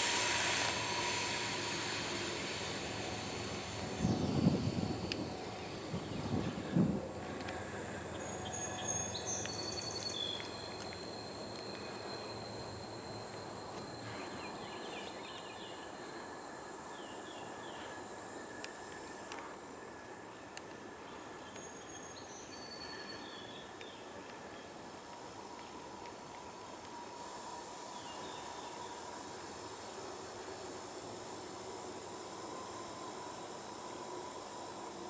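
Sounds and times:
thin whistling tones: 0:00.0 - 0:18.8
steady outdoor hiss: 0:00.0 - 0:35.0.

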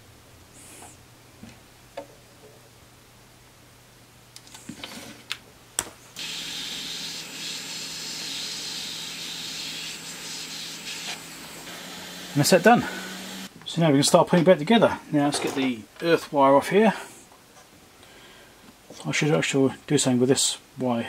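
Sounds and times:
hot air gun hissing: 0:06.2 - 0:13.5.

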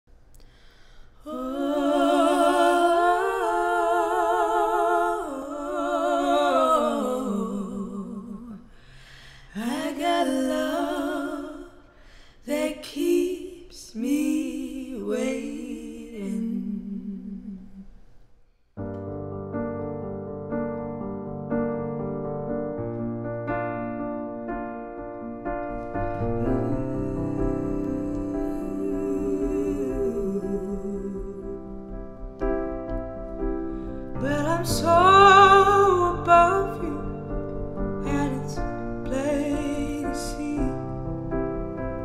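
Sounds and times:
women singing wordless notes: 0:00.6 - 0:18.0, 0:26.1 - 0:32.2, 0:34.1 - 0:41.1
keyboard chords: 0:18.8 - 0:42.0.

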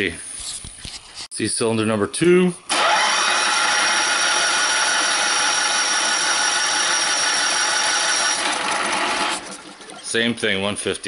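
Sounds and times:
engine cranking without firing: 0:02.7 - 0:10.2.

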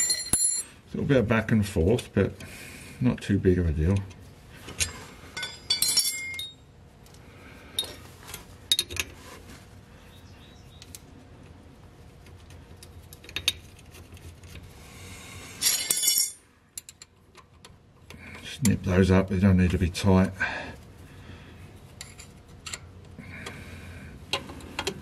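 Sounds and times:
metal hand tools clinking: 0:04.8 - 0:06.6, 0:15.6 - 0:16.9.

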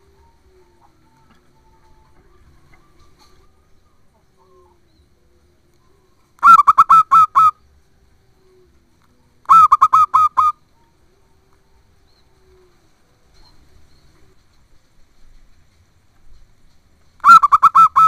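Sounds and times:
dove cooing: 0:00.0 - 0:14.5, 0:17.2 - 0:18.0.

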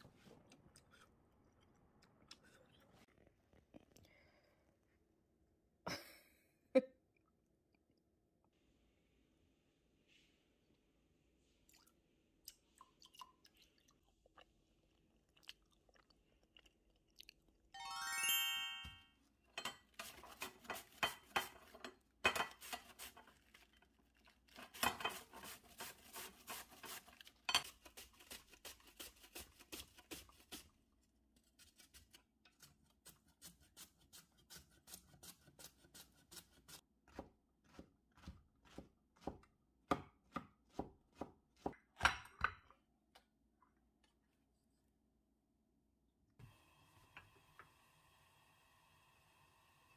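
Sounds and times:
short bright chime: 0:17.8 - 0:19.1
cabbage grated on metal grater: 0:20.0 - 0:23.5, 0:24.5 - 0:30.7, 0:31.5 - 0:36.8.

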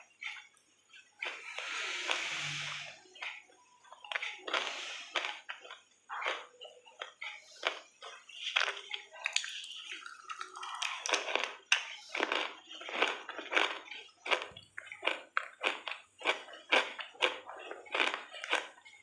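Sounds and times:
person crunching and chewing: 0:04.1 - 0:18.9.

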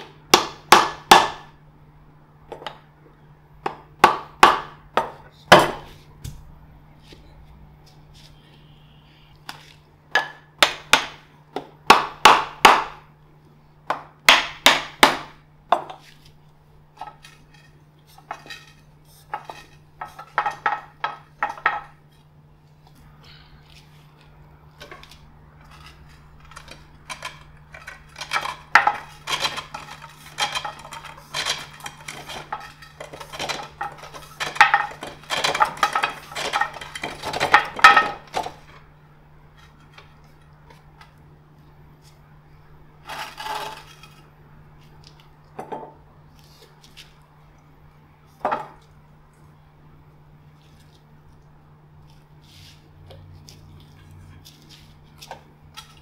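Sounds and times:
wooden mallet knocking on wood: 0:00.3 - 0:01.5.

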